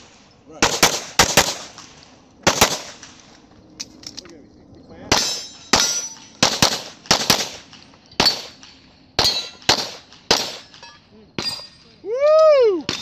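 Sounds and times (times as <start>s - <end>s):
pistol shots: 0.0s - 3.3s, 5.1s - 11.7s
bullets ringing on steel targets: 5.1s - 12.0s.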